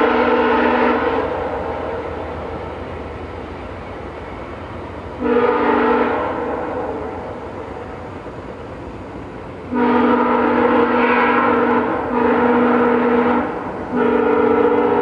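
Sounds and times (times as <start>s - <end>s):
locomotive air horn blasts: 0.0s - 2.2s, 5.2s - 7.6s, 9.7s - 15.0s.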